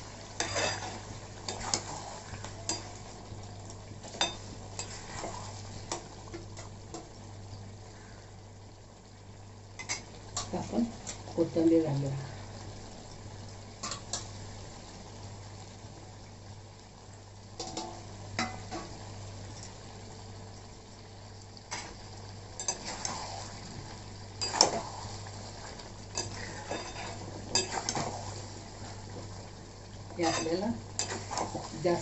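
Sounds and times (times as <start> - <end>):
low steady hum: 0.0 - 32.0
metal spatula scraping a pan: 0.4 - 3.0, 22.6 - 23.5, 26.1 - 28.2.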